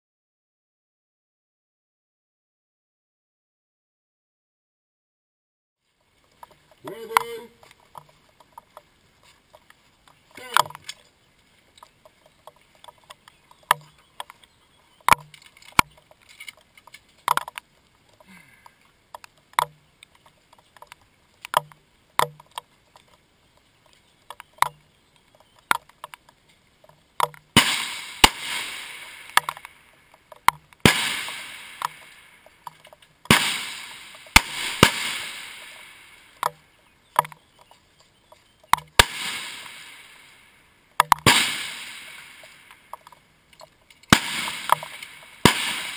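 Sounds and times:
short sharp clicks and knocks: 19.2 - 22.7, 41.0 - 41.3
rifle shots with rolling echo: 27.5 - 30.2, 30.8 - 32.7, 33.3 - 36.7, 38.8 - 43.0, 44.0 - 45.9.

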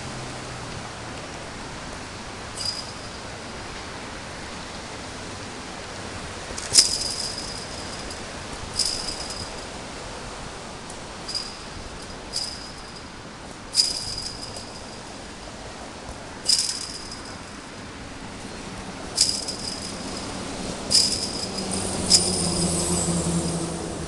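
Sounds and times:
truck engine hum: 0.0 - 24.0
chain-link fence jangling when kicked: 2.6 - 3.3, 6.6 - 9.8, 11.2 - 15.2, 16.4 - 17.6, 19.1 - 23.5.

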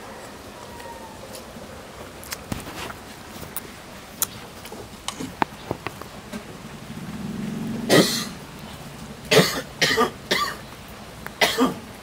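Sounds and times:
low hum: 6.1 - 10.3
man coughing: 9.3 - 10.6, 11.4 - 11.8.

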